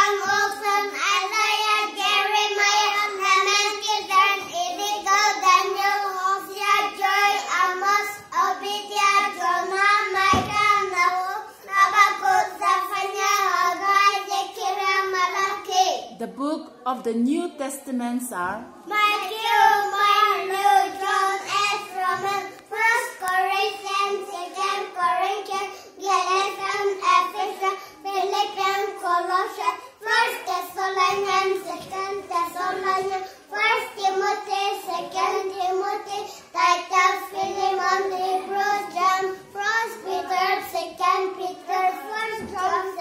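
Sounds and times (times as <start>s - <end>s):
boys singing a chant: 0.0s - 15.6s.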